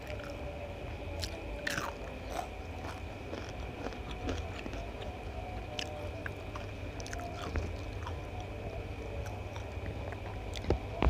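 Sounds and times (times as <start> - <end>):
person chewing and biting food: 1.2 - 4.8, 5.8 - 8.2.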